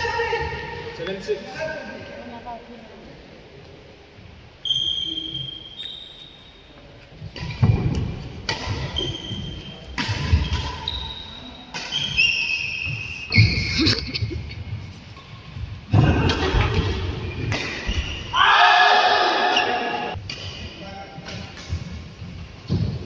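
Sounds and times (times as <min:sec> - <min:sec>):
racket striking shuttlecock: 0:07.4 - 0:09.2, 0:09.8 - 0:10.9, 0:16.3 - 0:18.2.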